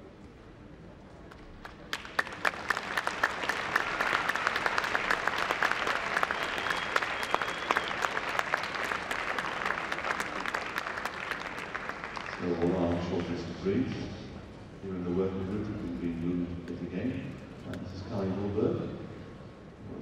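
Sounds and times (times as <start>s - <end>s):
audience applauding: 1.6s - 13.4s.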